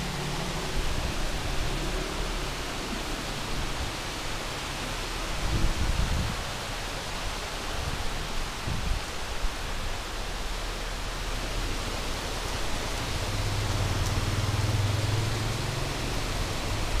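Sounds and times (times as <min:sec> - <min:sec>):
passing car engine hum: 0:00.0 - 0:05.1, 0:11.0 - 0:17.0
rain on a wet street: 0:00.0 - 0:17.0.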